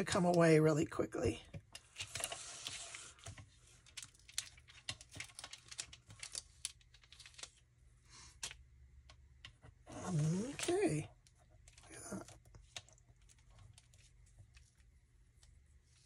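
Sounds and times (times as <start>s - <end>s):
small crackles and clicks: 1.5s - 7.7s, 8.3s - 16.0s
envelope paper tearing: 9.9s - 11.0s.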